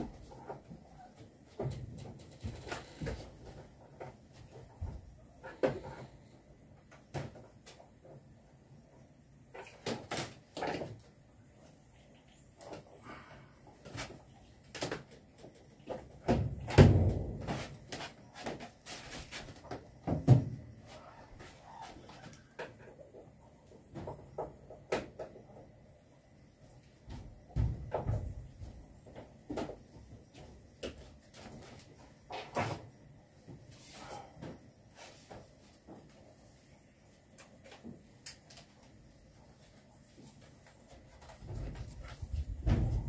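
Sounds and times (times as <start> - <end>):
deep thumps: 41.5 - 43.0.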